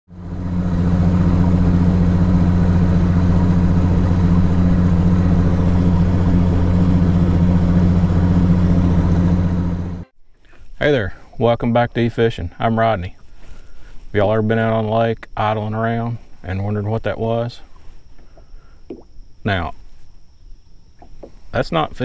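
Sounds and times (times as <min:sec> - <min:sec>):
outboard motor idling: 0:00.1 - 0:10.1.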